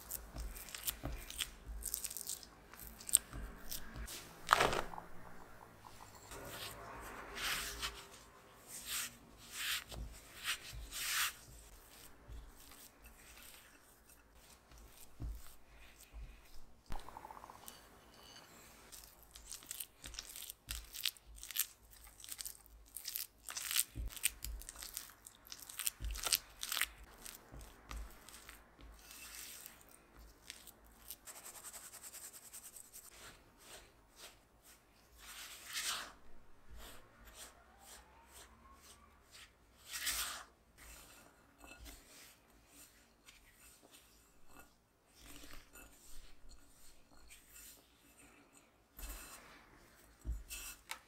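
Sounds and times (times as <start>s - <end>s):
spatula scraping glass bowl: 5.0s - 19.2s, 39.9s - 48.2s.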